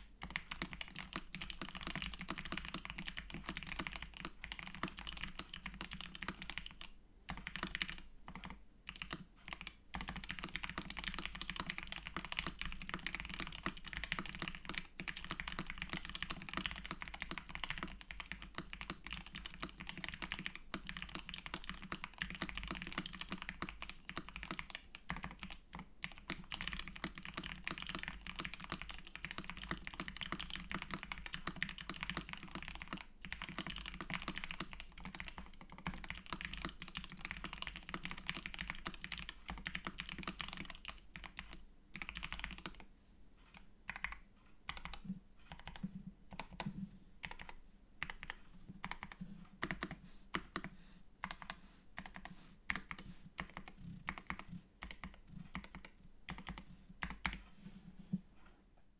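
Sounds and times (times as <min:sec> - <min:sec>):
mechanical keyboard typing: 0:00.2 - 0:42.9, 0:43.5 - 0:57.5.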